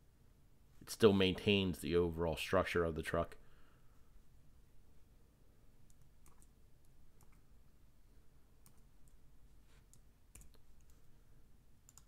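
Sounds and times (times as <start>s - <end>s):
low room hiss: 0.0s - 12.0s
computer mouse clicks: 5.9s - 7.5s, 8.6s - 9.2s, 9.8s - 11.1s.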